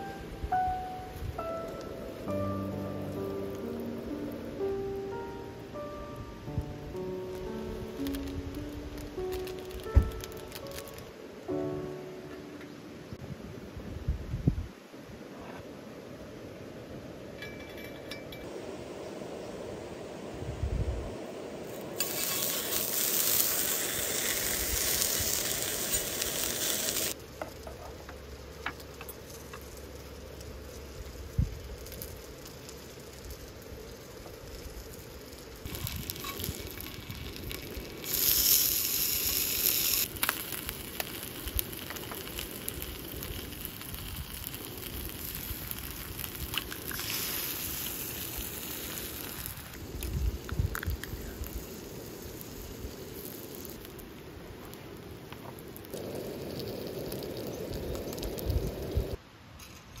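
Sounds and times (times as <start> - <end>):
bacon sizzling in skillet: 6.6 - 11.0, 21.7 - 59.2.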